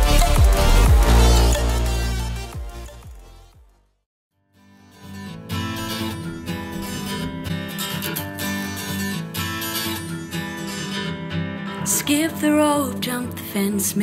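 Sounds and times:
strummed acoustic guitar song: 0:04.5 - 0:14.0.

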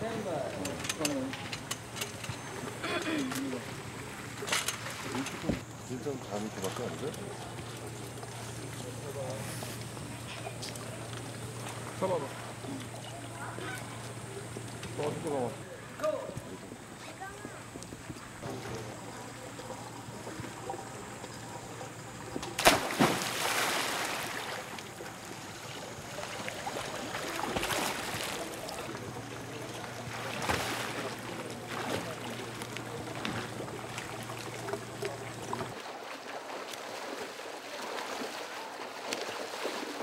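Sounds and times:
water sloshing: 0:00.0 - 0:40.0
swimming stroke splashes: 0:22.5 - 0:40.0
loud splash into pool: 0:22.6 - 0:24.8, 0:30.2 - 0:32.1.

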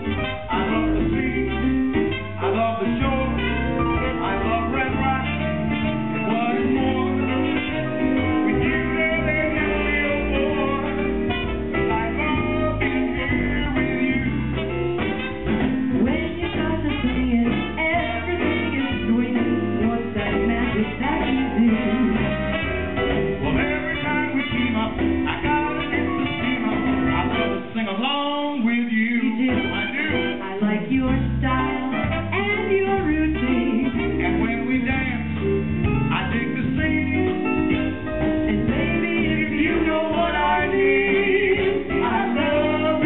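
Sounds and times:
live swing band: 0:00.0 - 0:43.0
person singing: 0:27.2 - 0:35.4.

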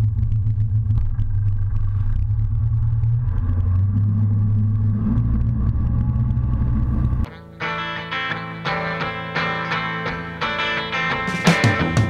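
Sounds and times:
boat engine droning: 0:00.0 - 0:07.3.

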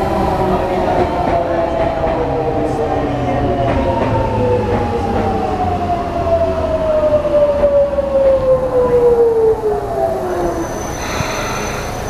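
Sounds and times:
train running rumble: 0:00.0 - 0:12.0.

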